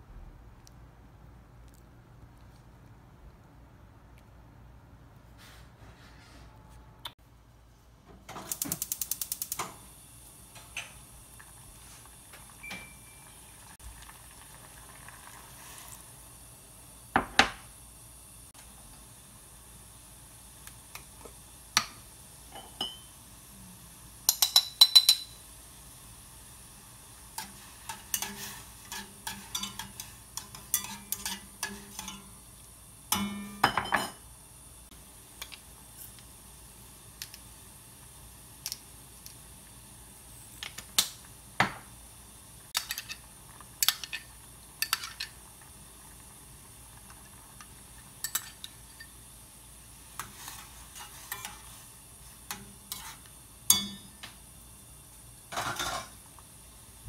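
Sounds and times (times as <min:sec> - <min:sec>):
saucepan simmering hiss: 0:07.5 - 0:57.0
metal spoon clinking on dishes: 0:24.3 - 0:25.4, 0:27.4 - 0:32.3, 0:48.2 - 0:49.1, 0:53.7 - 0:54.2.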